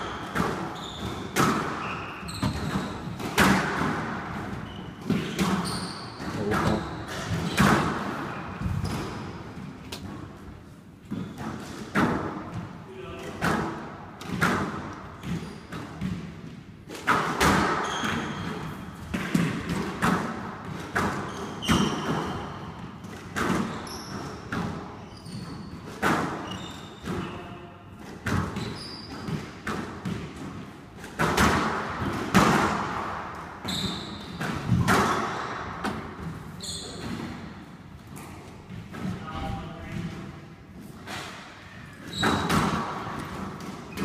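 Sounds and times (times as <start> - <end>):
shoes squeaking on wooden floor: 0.0 - 3.4, 4.5 - 11.7, 15.1 - 15.8, 17.8 - 18.8, 21.2 - 27.7, 28.5 - 29.6, 33.6 - 35.3, 36.5 - 37.2, 41.6 - 42.9
squash ball hits: 0.0 - 10.2, 11.0 - 12.8, 13.4 - 40.2, 42.0 - 44.0.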